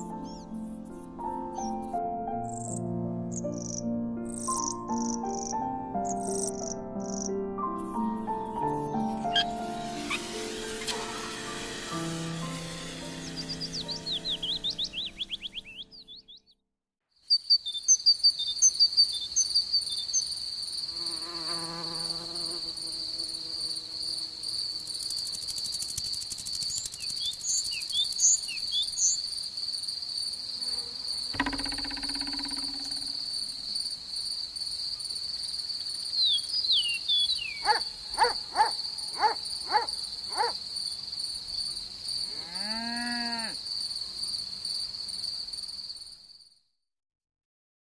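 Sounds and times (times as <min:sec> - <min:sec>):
cricket chirping trill: 0:00.0 - 0:11.4, 0:17.3 - 0:46.6
rising and falling sweeps: 0:09.5 - 0:15.8
noisy burst: 0:09.8 - 0:14.4.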